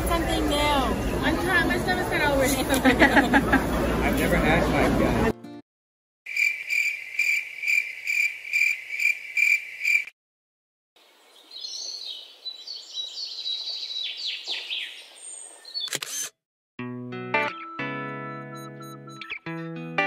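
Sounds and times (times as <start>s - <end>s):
cricket chirping: 6.3s - 10.1s
birds singing: 11.0s - 16.0s.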